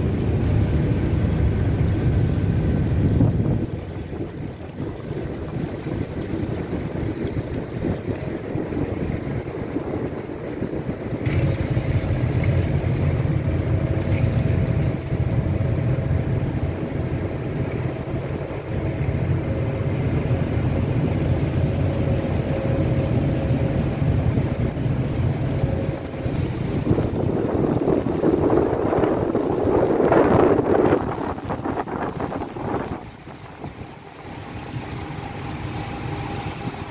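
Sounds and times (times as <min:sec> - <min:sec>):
ship engine rumbling: 0:00.0 - 0:36.9
steady humming tone: 0:00.0 - 0:36.9
wind buffeting microphone: 0:00.0 - 0:36.9.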